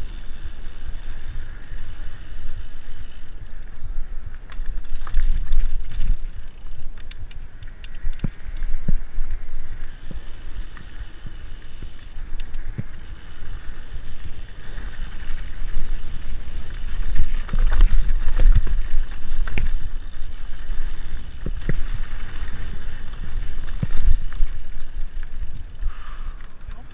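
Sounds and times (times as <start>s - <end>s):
wind rumble on microphone: 0.0s - 26.9s
bike knocks and rattles: 11.2s - 13.1s.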